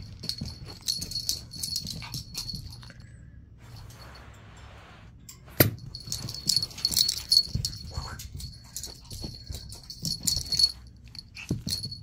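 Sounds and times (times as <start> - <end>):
dog paws scuffling on carpet: 0.0 - 2.9, 3.6 - 12.0
metal tag jingling: 5.3 - 12.0.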